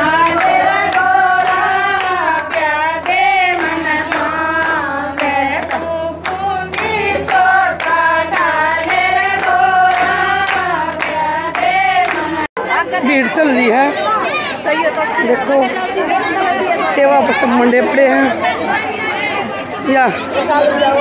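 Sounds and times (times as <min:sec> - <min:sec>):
hands clapping in rhythm: 0:00.0 - 0:12.5
women singing together: 0:00.0 - 0:13.9.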